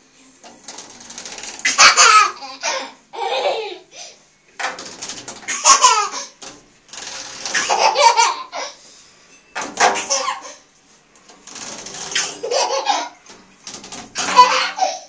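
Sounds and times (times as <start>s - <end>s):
toddler laughing: 1.6s - 4.0s, 5.5s - 6.3s, 7.5s - 8.8s, 10.0s - 10.6s, 12.2s - 13.2s, 14.2s - 15.0s
bottle rattling on radiator fins: 4.6s - 8.3s, 9.6s - 10.3s, 11.2s - 14.8s.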